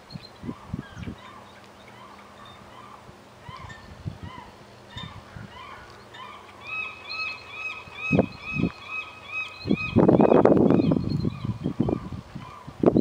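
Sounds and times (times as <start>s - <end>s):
eagle chirping whistles: 5.0s - 11.6s.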